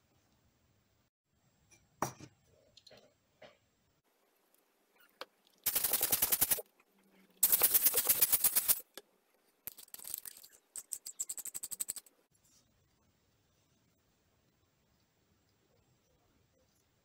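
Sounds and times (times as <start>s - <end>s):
rapid mechanical clicks: 5.6s - 6.6s.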